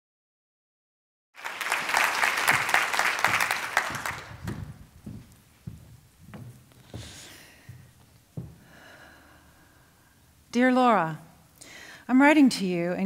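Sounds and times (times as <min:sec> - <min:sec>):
audience applauding: 0:01.4 - 0:05.0
soft low thumps: 0:03.4 - 0:09.5.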